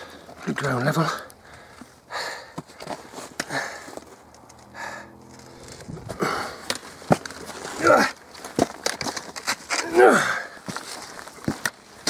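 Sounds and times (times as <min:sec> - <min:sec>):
man breathing hard: 0:00.0 - 0:00.4, 0:01.2 - 0:05.3, 0:06.0 - 0:06.8
man groaning: 0:07.7 - 0:08.2, 0:09.8 - 0:10.6.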